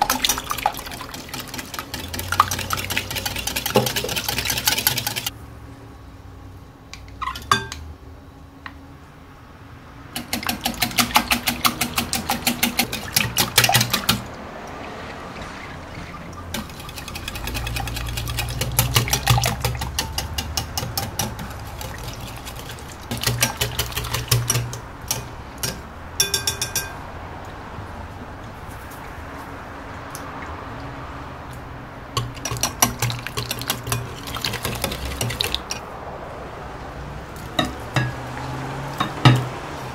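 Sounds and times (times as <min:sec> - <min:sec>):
whisk ticking against glass bowl: 0:00.0 - 0:05.3, 0:10.2 - 0:14.3, 0:16.5 - 0:27.0, 0:32.2 - 0:35.8.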